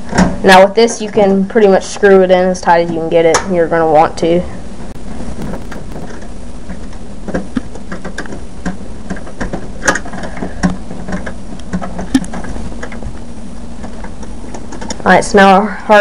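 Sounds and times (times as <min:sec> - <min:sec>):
steady low hum: 0:05.4 - 0:06.7.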